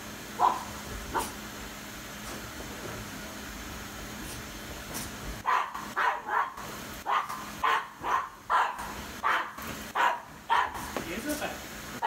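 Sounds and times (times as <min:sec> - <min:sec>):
puppy barking: 0:00.4 - 0:01.4, 0:05.4 - 0:10.9.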